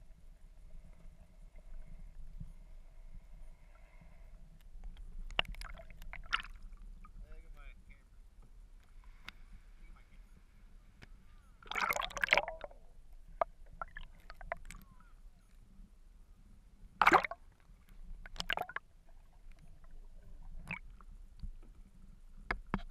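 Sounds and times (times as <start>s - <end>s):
water splashing and gurgling: 5.3s - 6.8s, 11.6s - 14.8s, 17.0s - 21.0s.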